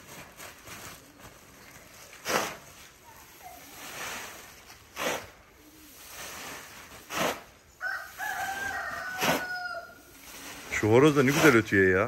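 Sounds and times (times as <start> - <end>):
rooster crowing: 7.8 - 10.1.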